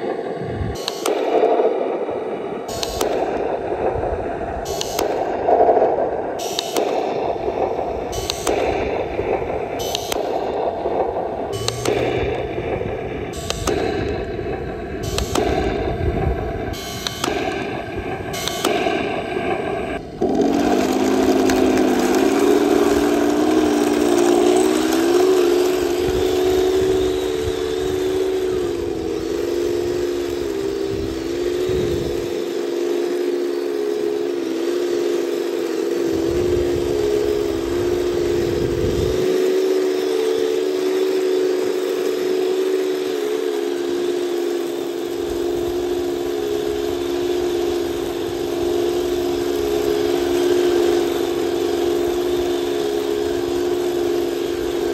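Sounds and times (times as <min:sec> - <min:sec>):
toy tank mechanical hum: 0:00.0 - 0:54.9
low rumble: 0:07.0 - 0:33.0.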